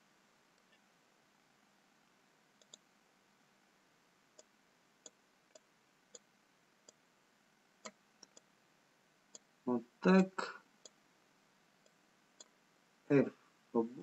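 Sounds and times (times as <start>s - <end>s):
computer mouse clicks: 2.6s - 2.9s, 7.8s - 8.5s.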